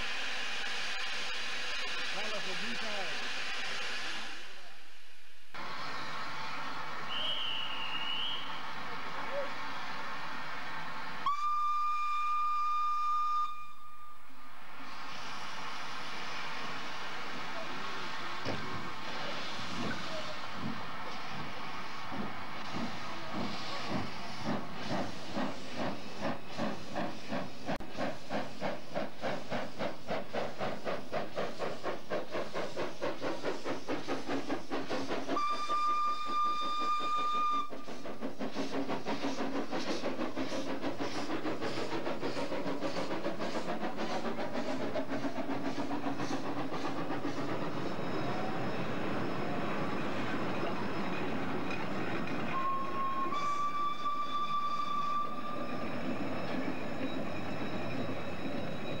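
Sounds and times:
steam locomotive exhaust chuffs: 0:05.5 - 0:59.0
carriages rumbling on rails: 0:05.6 - 0:59.0
steam whistle blast: 0:07.1 - 0:08.6, 0:11.2 - 0:14.3, 0:35.4 - 0:37.9, 0:52.5 - 0:55.6.

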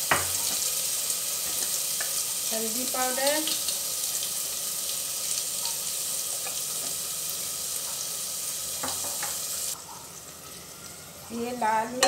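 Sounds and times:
oil sizzling: 0:00.0 - 0:12.0.

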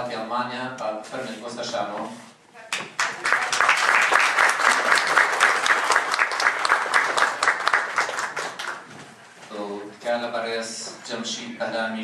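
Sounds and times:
audience applauding: 0:02.8 - 0:08.9.

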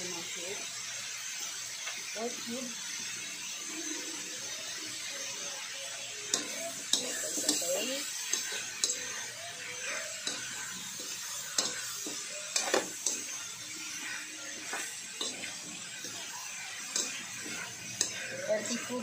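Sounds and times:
food sizzling: 0:00.0 - 0:19.0
spatula scraping a metal wok: 0:06.2 - 0:19.0.

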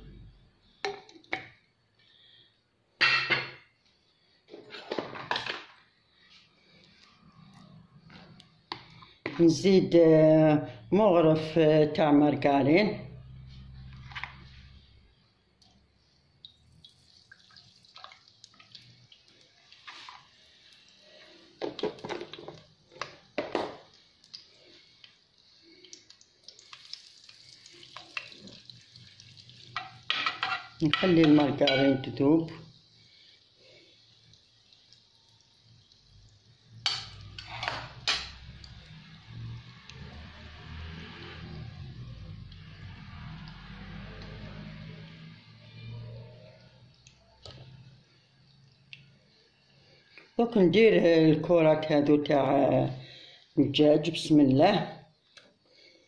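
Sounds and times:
dishes and utensils clattering: 0:03.0 - 0:03.7, 0:04.5 - 0:05.8, 0:29.8 - 0:32.1, 0:36.9 - 0:38.4
margarine sizzling in hot oil: 0:16.1 - 0:50.2
metal spoon scraping clay pot: 0:29.8 - 0:32.2, 0:36.9 - 0:38.4.

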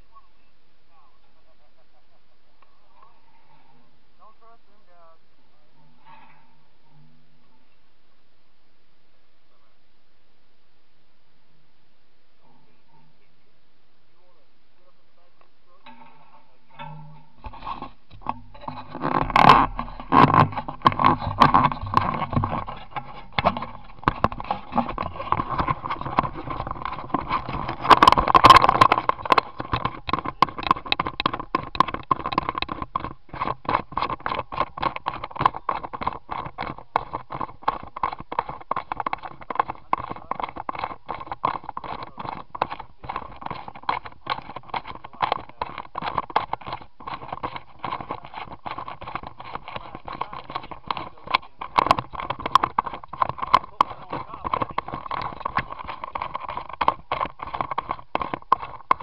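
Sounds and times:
camera rubbing against clothing: 0:14.2 - 0:59.0.

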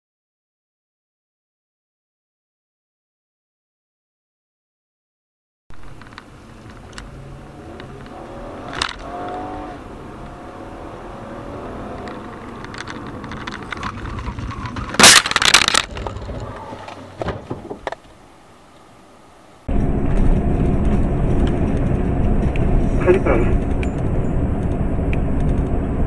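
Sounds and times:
road and engine noise: 0:05.7 - 0:26.0
car crash: 0:07.8 - 0:18.0.

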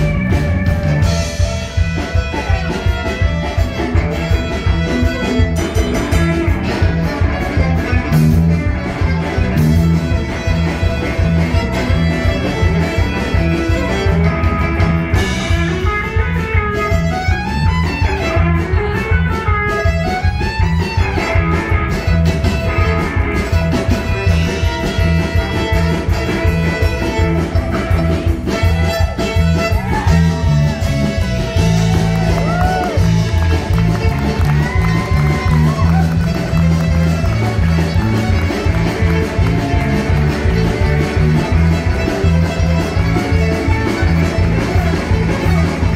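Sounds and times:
live band with fiddle: 0:00.0 - 0:45.9.

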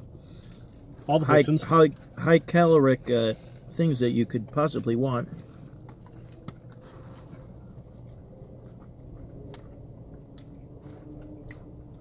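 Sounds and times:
low steady hum: 0:00.0 - 0:12.0
men chewing: 0:05.3 - 0:12.0.

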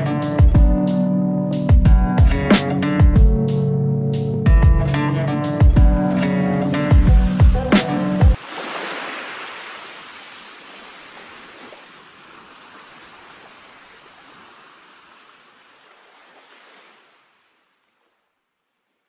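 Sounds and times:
ocean surf breaking: 0:05.1 - 0:17.2.

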